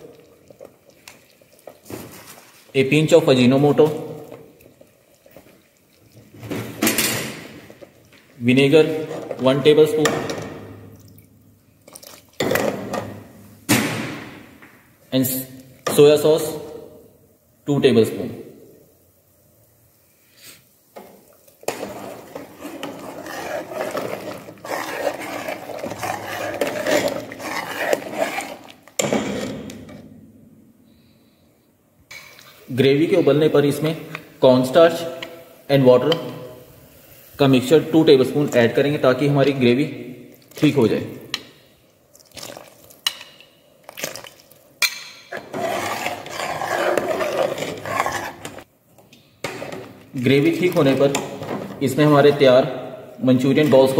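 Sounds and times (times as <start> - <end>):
liquid sloshing: 0.0 - 2.8, 10.9 - 13.0, 21.5 - 30.0, 42.1 - 44.7, 45.3 - 48.7.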